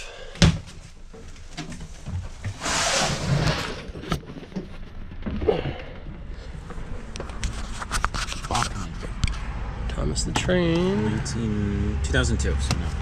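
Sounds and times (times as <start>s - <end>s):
knocks and shuffling: 0.6s - 9.5s.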